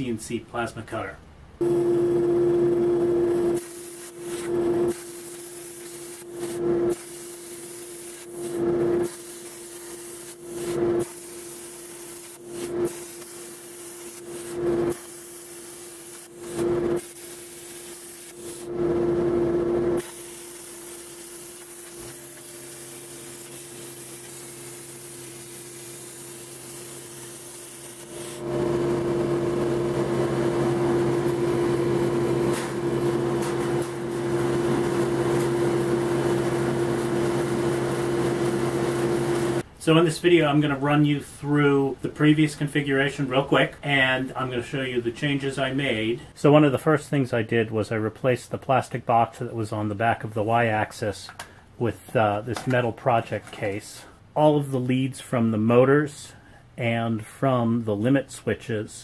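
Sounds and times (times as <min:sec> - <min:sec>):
steady hum: 0:01.3 - 0:40.8
plasma cutter torch hissing: 0:03.6 - 0:18.7, 0:20.0 - 0:28.5.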